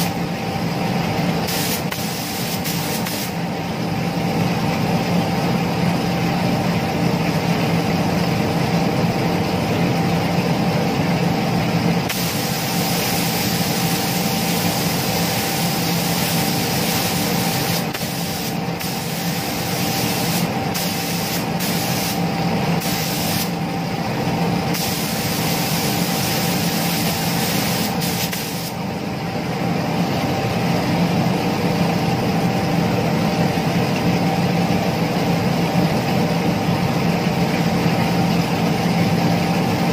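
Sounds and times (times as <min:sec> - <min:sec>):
steady machine hum: 0:00.0 - 0:39.9
paint spray gun hissing: 0:01.4 - 0:03.4, 0:12.1 - 0:22.2, 0:22.8 - 0:23.6, 0:24.7 - 0:28.8.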